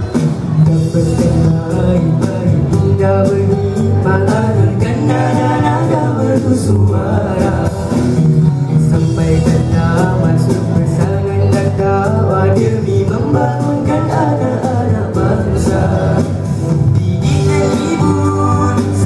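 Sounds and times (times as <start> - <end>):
boys singing together: 4.4 - 8.0, 10.0 - 16.5.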